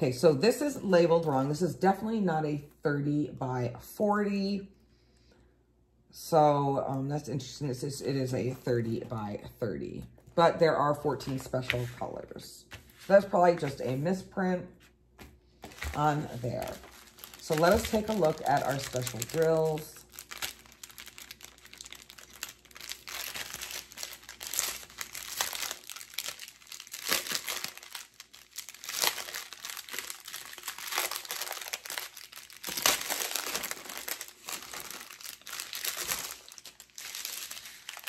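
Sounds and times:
plastic bags crinkling: 15.6s - 38.0s.

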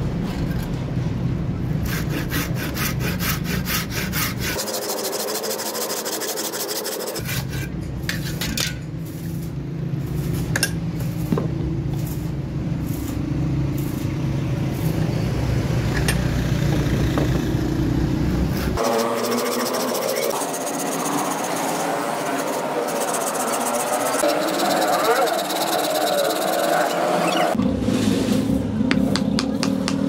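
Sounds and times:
engine-like hum: 0.0s - 30.0s
hand saw cutting steel: 1.8s - 9.4s, 18.5s - 27.6s.

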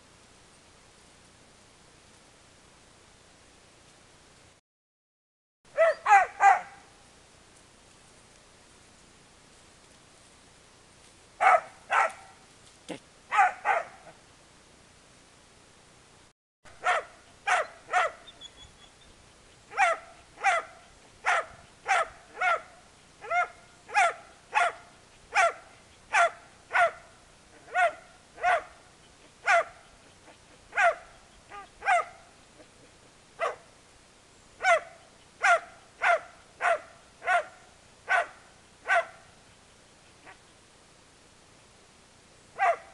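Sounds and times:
dog barking: 5.8s - 6.9s, 11.4s - 12.4s, 13.3s - 14.2s, 16.8s - 18.3s, 19.7s - 28.8s, 29.4s - 32.3s, 33.4s - 33.7s, 34.6s - 39.3s, 42.6s - 42.9s.

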